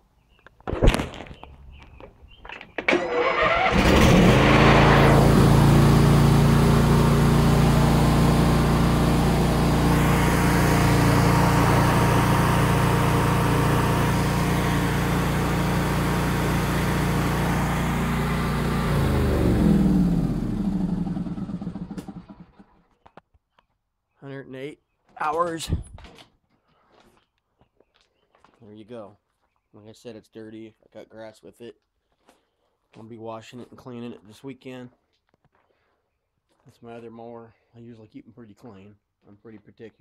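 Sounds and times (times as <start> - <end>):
lawn mower engine running: 2.8 - 22.8.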